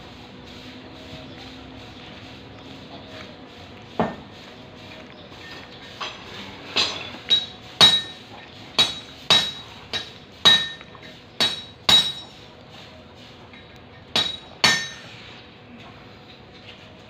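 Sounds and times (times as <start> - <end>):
hammer striking metal horseshoe: 6.8 - 8.2, 8.8 - 12.4, 14.1 - 15.1.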